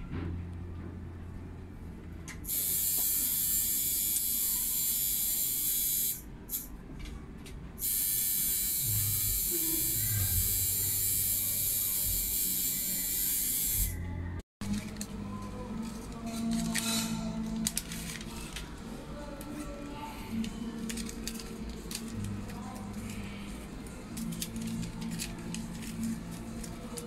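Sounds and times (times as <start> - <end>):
tattoo machine buzzing: 2.5 - 6.7, 7.8 - 14.0.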